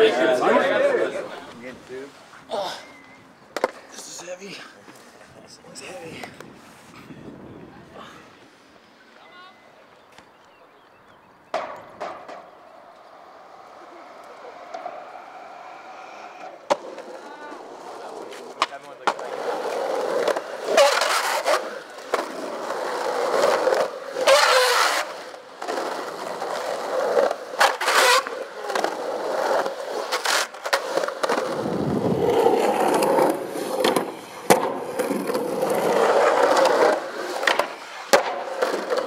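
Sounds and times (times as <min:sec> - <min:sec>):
skateboard wheels rolling on concrete: 0:00.0 - 0:39.0
skateboard clacking on ground: 0:03.5 - 0:04.2, 0:11.5 - 0:39.0.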